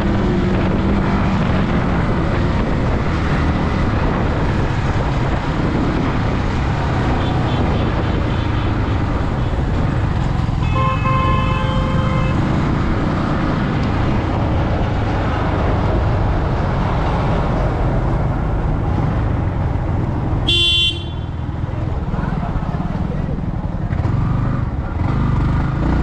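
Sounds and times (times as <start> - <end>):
wind and road noise: 0.0 - 26.0
vehicle horn: 10.6 - 12.4, 20.5 - 21.4.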